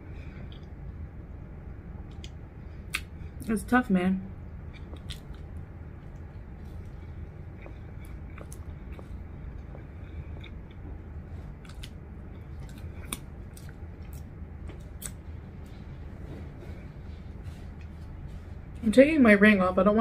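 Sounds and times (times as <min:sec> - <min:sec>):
steady low hum: 0:00.0 - 0:20.0
person chewing food: 0:00.2 - 0:01.0, 0:04.4 - 0:18.5
wet mouth clicks and smacks: 0:12.6 - 0:15.2.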